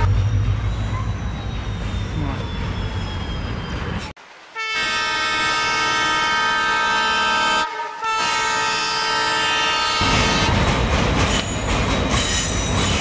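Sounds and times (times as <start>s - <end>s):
train running noise: 0.0s - 13.0s
train horn blasts: 4.6s - 10.5s.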